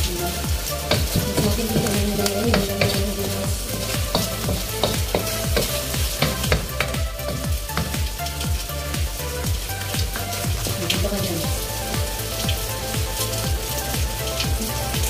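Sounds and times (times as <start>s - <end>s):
food sizzling in a wok: 0.0s - 10.7s.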